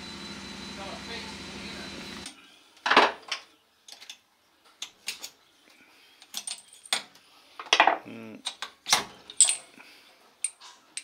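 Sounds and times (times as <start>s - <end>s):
metal parts clinking on workbench: 6.2s - 7.1s, 9.3s - 9.7s.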